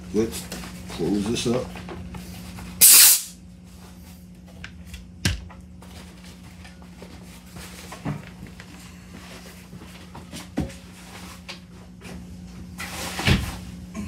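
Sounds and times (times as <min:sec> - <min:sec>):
compressed air blast: 0:02.8 - 0:03.4.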